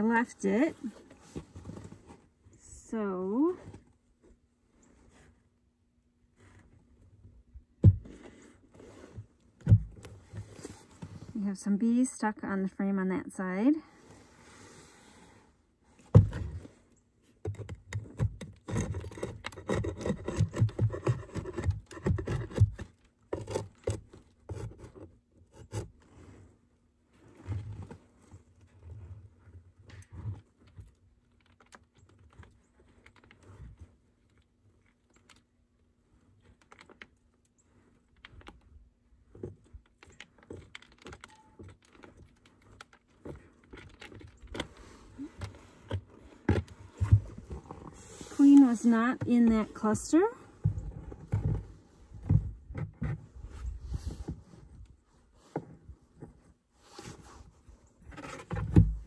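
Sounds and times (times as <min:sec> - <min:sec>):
wooden frame scraping and clicking: 0:50.6 - 0:59.0.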